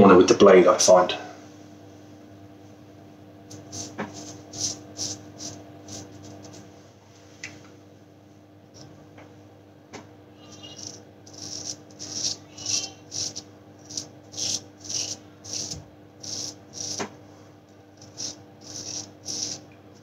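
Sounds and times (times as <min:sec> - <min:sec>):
razor scraping stubble: 0:03.5 - 0:06.6, 0:10.4 - 0:17.1, 0:18.0 - 0:19.6.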